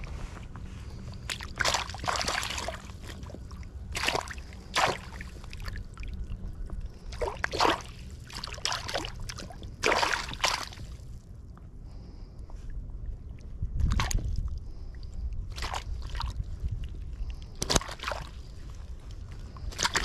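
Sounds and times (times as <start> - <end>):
steady low rumble: 0.0 - 20.0
water splashing in a landing net: 1.3 - 6.2, 7.1 - 11.0, 15.5 - 16.4, 17.6 - 18.5, 19.6 - 20.0.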